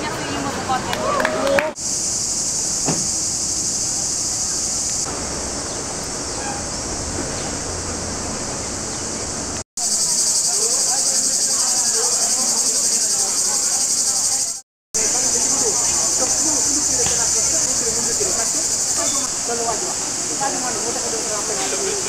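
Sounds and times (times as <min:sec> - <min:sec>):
faint chatter of passers-by: 0:00.0 - 0:01.8, 0:09.1 - 0:22.0
cicadas buzzing: 0:01.7 - 0:22.0.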